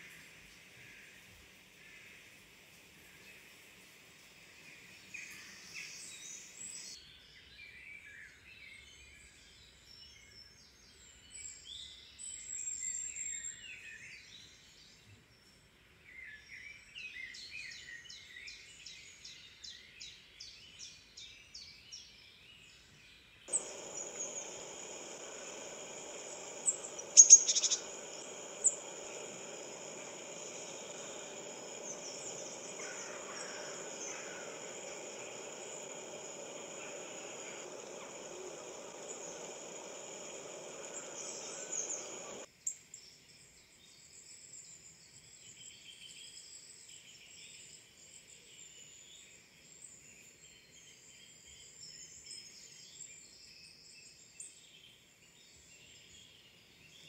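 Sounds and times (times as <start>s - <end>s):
outdoor ambience hiss: 0.0s - 7.7s, 23.0s - 57.0s
songbirds chirping and trilling: 22.9s - 42.5s
high steady drone: 23.5s - 42.5s
sharp loud bird calls: 23.5s - 42.5s.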